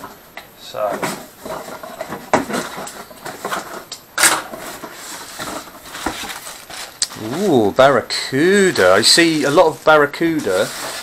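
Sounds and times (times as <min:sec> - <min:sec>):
packaging rustling and scraping: 0:00.8 - 0:11.0
sharp crackle: 0:02.4 - 0:07.8.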